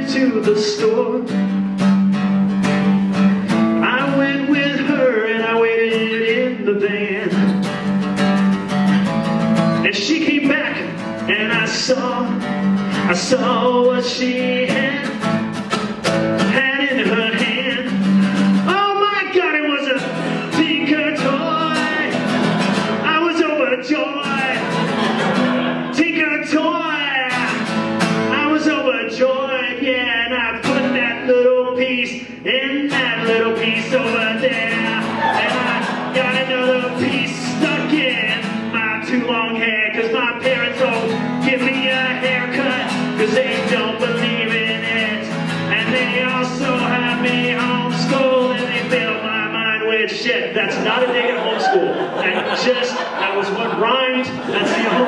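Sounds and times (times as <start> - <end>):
man singing: 0.0 - 1.6, 3.5 - 7.9, 9.7 - 55.0
strummed acoustic guitar: 0.0 - 55.0.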